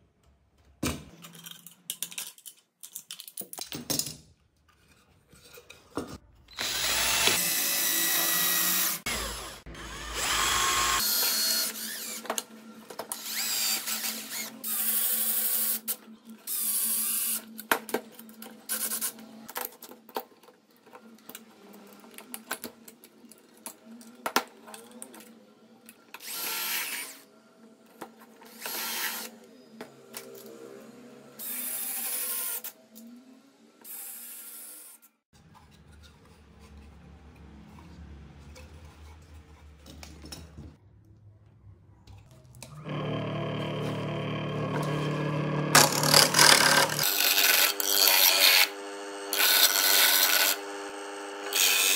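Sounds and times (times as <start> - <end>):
cordless drill driving screws: 6.5 - 12.2, 42.8 - 51.9
disc sander running: 6.6 - 12.3, 42.8 - 51.9.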